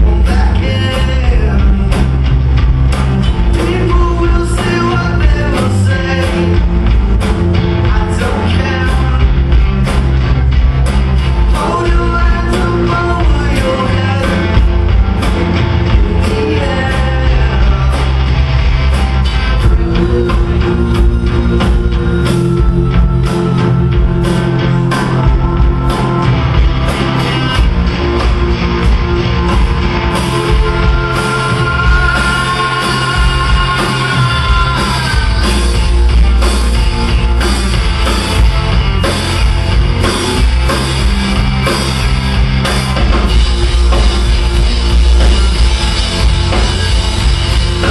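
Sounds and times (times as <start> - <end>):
man singing: 0.0 - 2.1, 3.5 - 6.7, 7.8 - 9.6, 11.5 - 18.2, 19.6 - 26.2, 30.2 - 35.8
drum kit: 0.0 - 47.9
electric guitars: 0.0 - 47.9.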